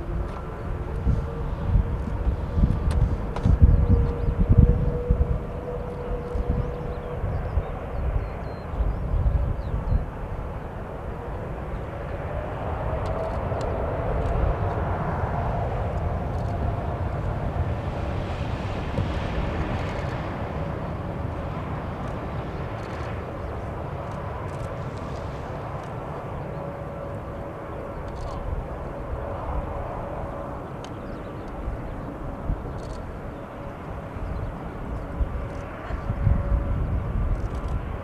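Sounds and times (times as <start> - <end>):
wind rumble on microphone: 0.0 - 38.0
jet engines spooling up: 10.2 - 38.0.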